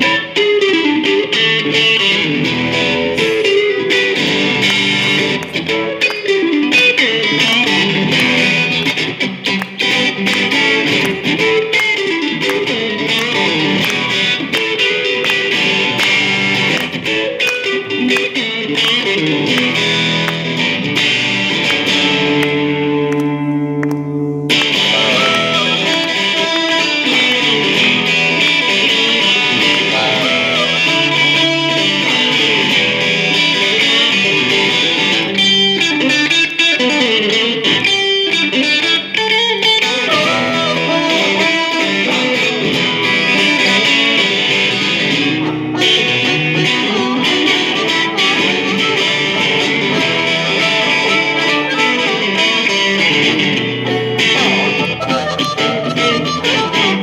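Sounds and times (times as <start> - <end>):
electric guitar playing blues: 0.0 - 57.0
harmonica: 23.4 - 34.8, 39.8 - 44.1, 45.4 - 53.2, 53.9 - 57.0.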